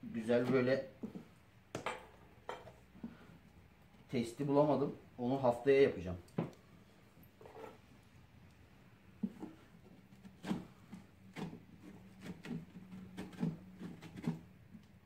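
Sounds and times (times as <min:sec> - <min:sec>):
scraping pumpkin flesh: 0:09.2 - 0:15.0.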